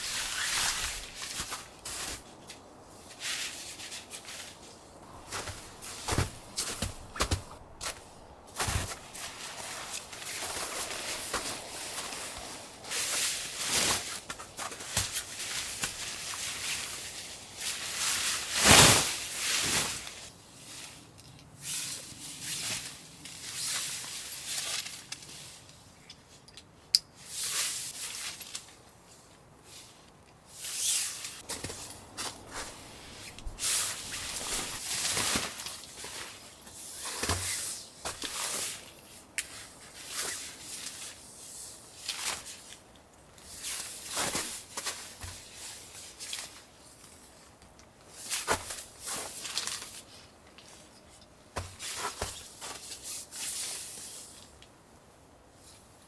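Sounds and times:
footsteps in snow: 0:00.0 - 0:20.2, 0:31.1 - 0:38.8
tent fabric rustling and flapping: 0:00.0 - 0:25.6, 0:27.3 - 0:47.5, 0:48.1 - 0:54.5.

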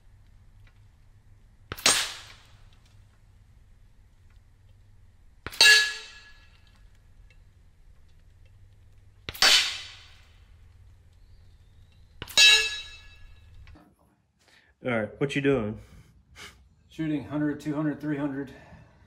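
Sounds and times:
bullet hitting steel plate: 0:01.7 - 0:02.7, 0:05.4 - 0:06.8, 0:09.3 - 0:10.4, 0:12.2 - 0:13.6.

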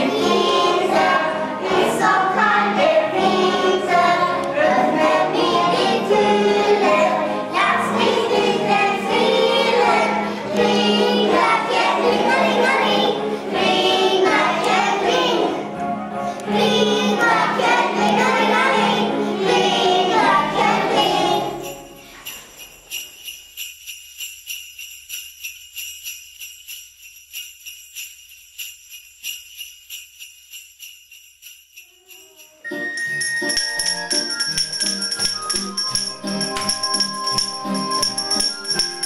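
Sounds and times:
children singing with music: 0:00.0 - 0:22.5, 0:31.9 - 0:39.0
sleigh bells jingling: 0:20.9 - 0:39.0.

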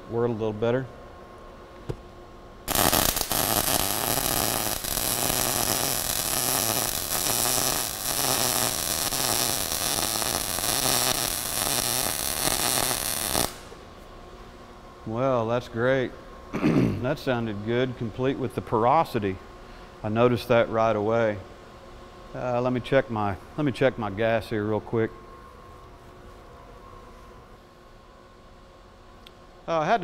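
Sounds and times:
welding arc crackling: 0:02.7 - 0:13.8.

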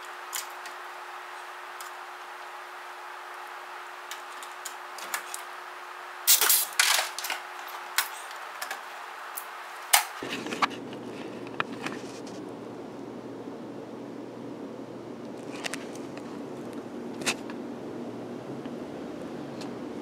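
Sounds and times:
steady hum: 0:00.0 - 0:20.0
pneumatic rivet gun snapping: 0:06.3 - 0:07.2.

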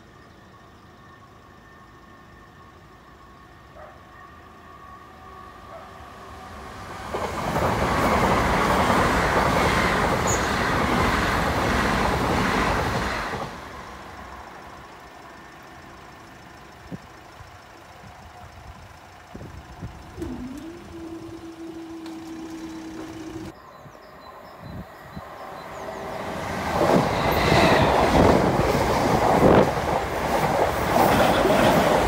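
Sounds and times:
train wheels rushing on rails: 0:06.0 - 0:15.3, 0:25.1 - 0:32.0.

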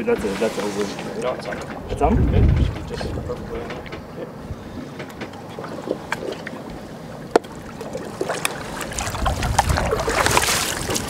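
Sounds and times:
water splashing and churning: 0:00.0 - 0:11.0.

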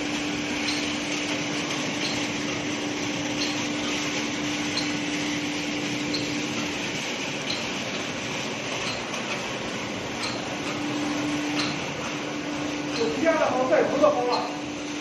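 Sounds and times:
machinery rushing noise: 0:00.0 - 0:15.0
steady hum: 0:00.0 - 0:15.0.

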